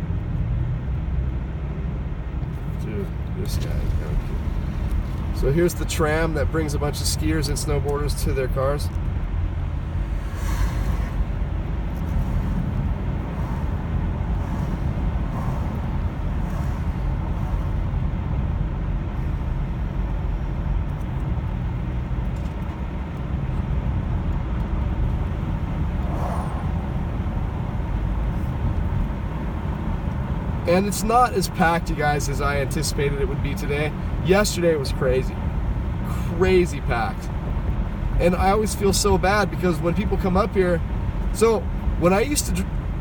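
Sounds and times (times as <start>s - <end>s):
car driving interior rumble: 0.0s - 43.0s.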